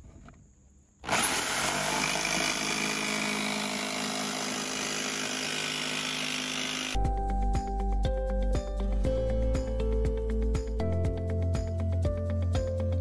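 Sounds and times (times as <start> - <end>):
jigsaw cutting sheet metal: 1.0 - 7.0.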